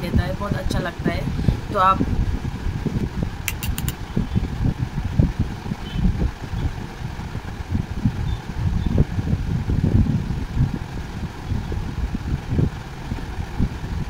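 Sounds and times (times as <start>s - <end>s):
air buffeting microphone: 0.0s - 14.0s
quick clicks: 3.5s - 4.0s.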